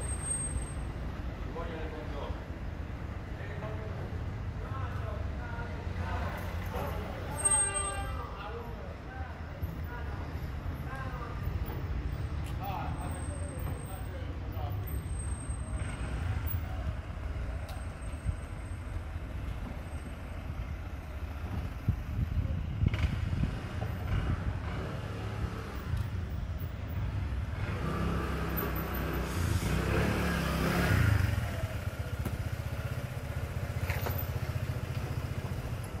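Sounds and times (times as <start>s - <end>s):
low street rumble: 0.0s - 36.0s
motor vehicle passing: 27.0s - 36.0s.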